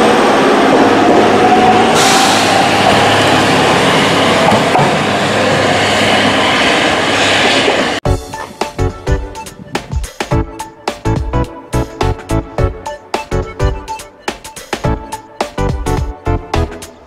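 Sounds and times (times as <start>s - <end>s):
wheels rumbling on rails: 0.0s - 9.8s.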